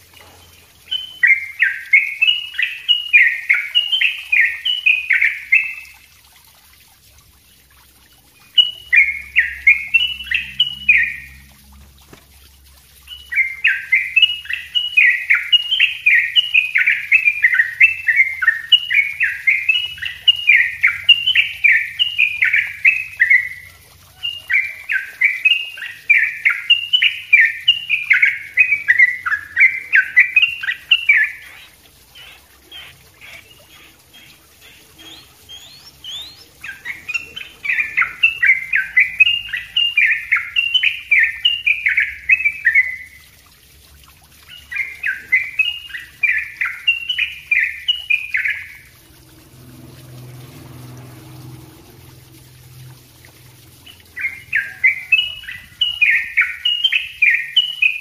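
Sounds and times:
bird singing rapid tumbling notes: 0.0s - 5.9s, 8.4s - 11.5s, 13.0s - 43.2s, 53.7s - 58.0s.

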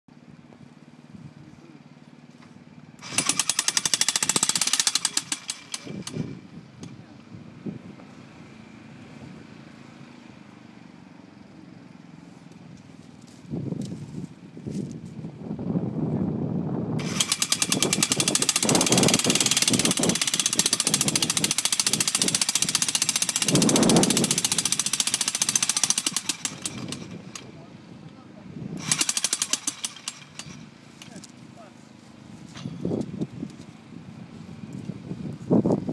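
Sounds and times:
jackhammer hammering metal pipe: 3.0s - 6.4s, 17.0s - 27.6s, 28.8s - 31.3s, 32.6s - 32.8s.

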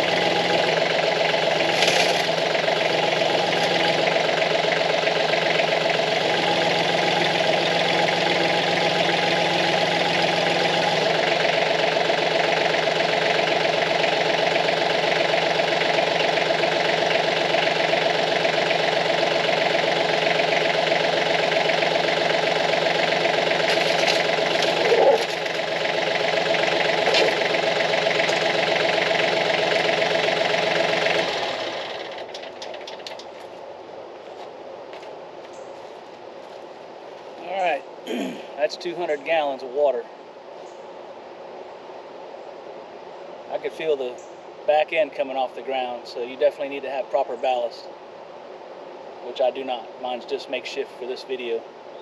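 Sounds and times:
tractor diesel engine running: 0.0s - 39.4s.

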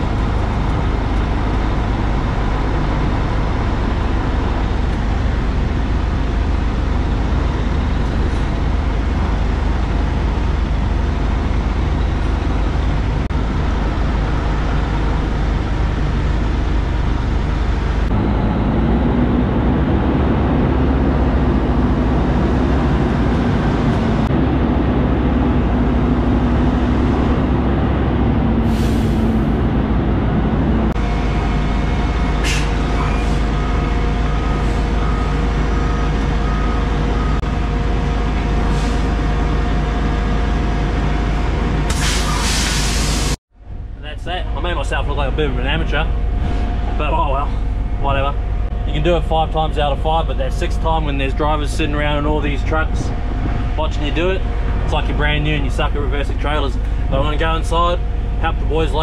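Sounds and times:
diesel truck engine running: 0.0s - 59.0s
air brake hisses: 28.6s - 29.4s, 32.4s - 33.4s, 38.7s - 39.1s, 41.9s - 43.4s.

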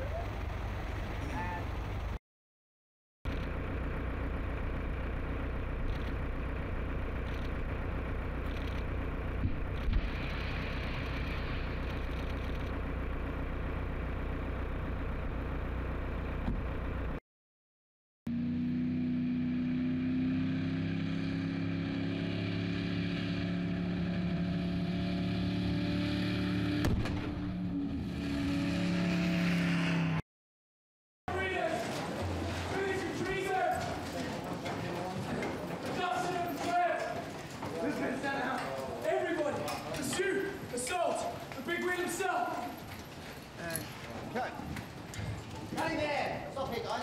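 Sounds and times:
truck and car engines running: 0.0s - 2.2s, 3.3s - 17.2s, 18.3s - 30.2s, 31.3s - 47.0s.

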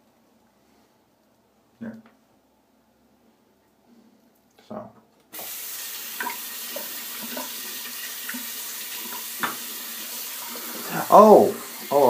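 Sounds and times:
tap water running: 5.3s - 12.0s.

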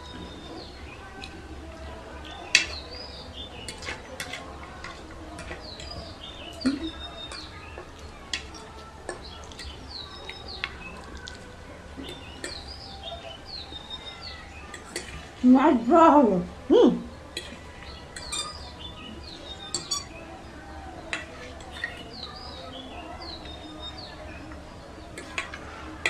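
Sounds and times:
small birds chirping: 0.0s - 26.0s
forks clicking against plates: 3.6s - 11.4s, 12.0s - 12.7s, 17.4s - 18.7s, 19.6s - 20.2s, 21.1s - 22.2s, 24.5s - 25.6s.

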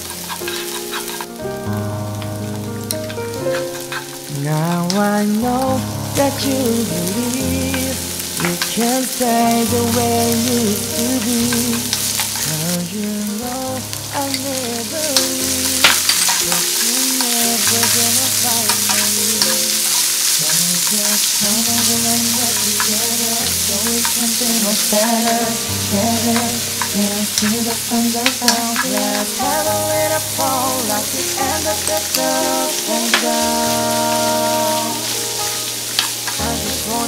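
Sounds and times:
wooden spatula scraping pan: 0.0s - 1.4s
vegetables sizzling in oil: 0.0s - 37.0s.

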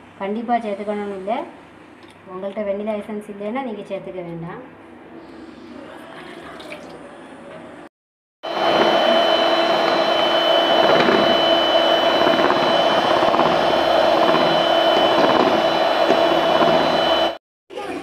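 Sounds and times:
electric hand mixer whirring: 8.4s - 17.4s.

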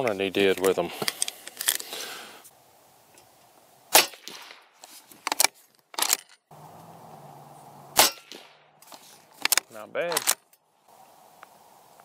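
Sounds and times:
suppressed rifle shot: 3.9s - 4.7s, 7.9s - 8.7s
rifle bolt metallic clacks: 5.3s - 6.4s, 9.4s - 10.6s.

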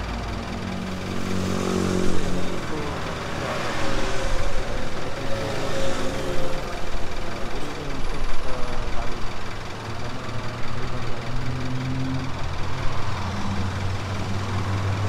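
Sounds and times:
motorcycles passing: 0.0s - 9.2s
cars passing: 0.0s - 15.0s.

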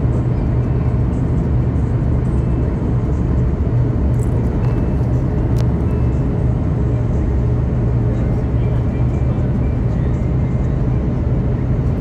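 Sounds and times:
jet engine roar and rushing air: 0.0s - 12.0s
low hum: 0.0s - 12.0s.

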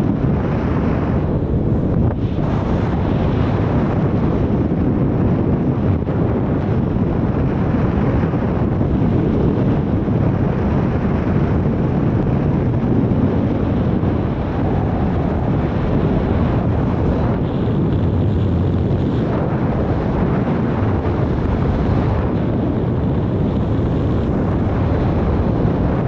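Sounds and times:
wind rushing over microphone: 0.0s - 26.0s.

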